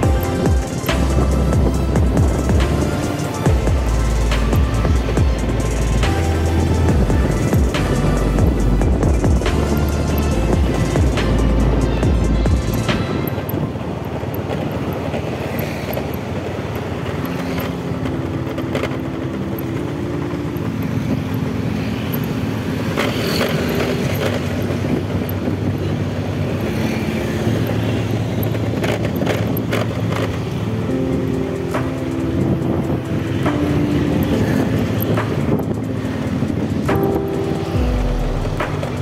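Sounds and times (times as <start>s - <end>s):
motorcycle engine running: 0.0s - 39.0s
road noise: 0.0s - 39.0s
traffic: 0.0s - 39.0s.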